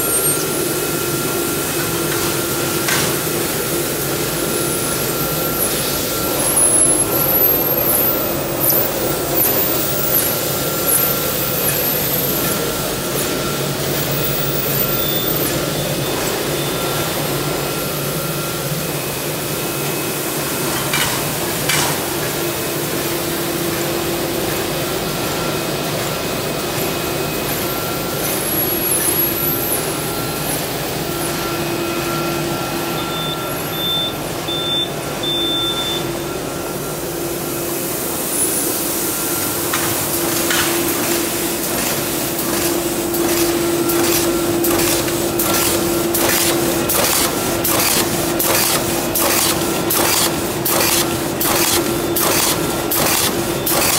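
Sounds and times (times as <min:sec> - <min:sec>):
machine humming and hissing: 0:00.0 - 0:53.9
machine clacking: 0:39.8 - 0:53.9.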